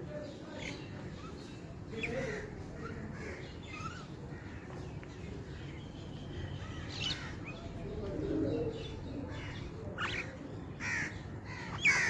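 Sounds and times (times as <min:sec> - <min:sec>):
sharp bird calls: 0:00.6 - 0:12.0
dove cooing: 0:07.6 - 0:09.6.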